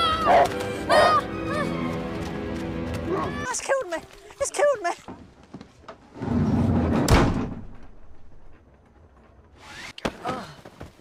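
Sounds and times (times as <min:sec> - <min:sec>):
door slamming shut: 0:07.0 - 0:08.0.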